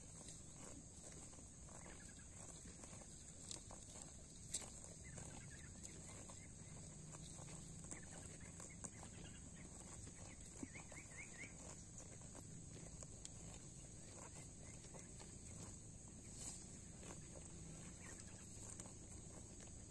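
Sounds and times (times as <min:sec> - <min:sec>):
cattle tearing and chewing grass: 0:00.0 - 0:19.9
hoof steps: 0:00.0 - 0:19.9.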